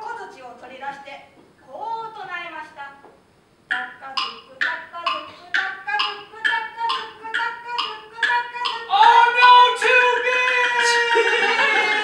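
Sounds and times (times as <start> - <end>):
sharp wooden taps: 3.7 - 8.8.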